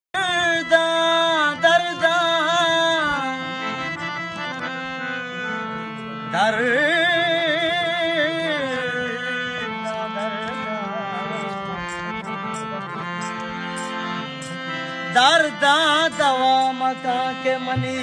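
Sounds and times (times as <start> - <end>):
harmonium drone: 0.1 - 18.0
man singing wavering notes: 15.1 - 18.0.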